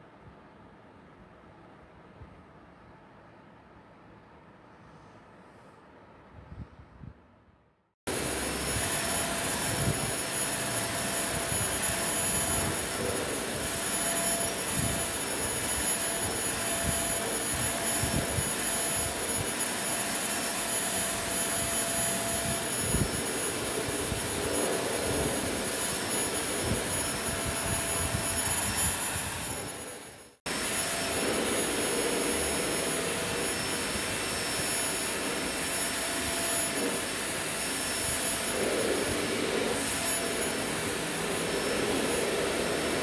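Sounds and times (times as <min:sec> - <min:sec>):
vacuum cleaner running: 0:08.1 - 0:43.0.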